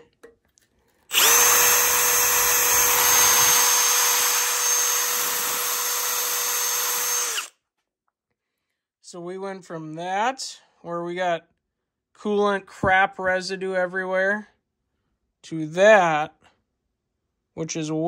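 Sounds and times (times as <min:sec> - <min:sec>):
power drill whining: 0:01.0 - 0:07.6.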